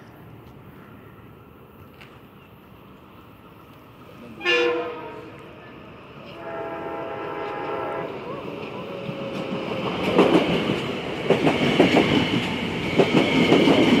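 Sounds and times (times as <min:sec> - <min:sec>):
train horn blast: 0:04.4 - 0:05.5, 0:06.3 - 0:08.2
electric train running: 0:06.4 - 0:14.0.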